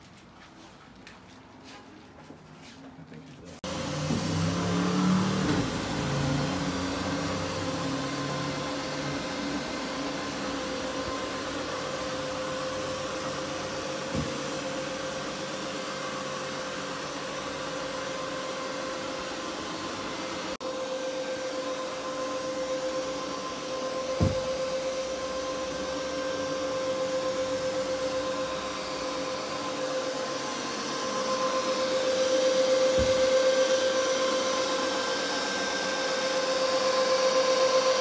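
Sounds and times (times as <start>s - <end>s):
carpet cleaning machine whirring: 3.6s - 38.0s
soft thump: 24.2s - 24.5s.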